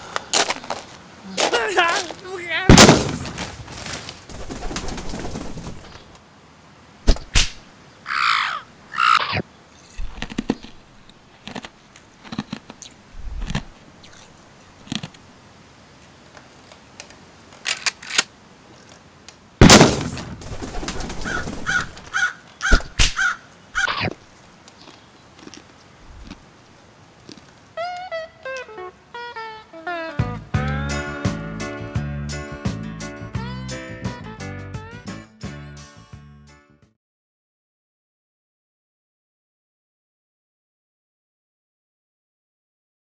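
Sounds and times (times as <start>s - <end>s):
loud bang: 2.7s - 3.5s
crow cawing: 8.0s - 9.3s, 21.2s - 24.1s.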